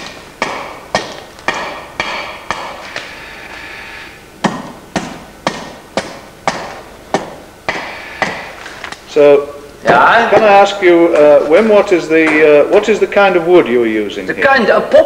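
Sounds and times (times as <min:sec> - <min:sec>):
axe chopping wood: 0:04.4 - 0:08.6.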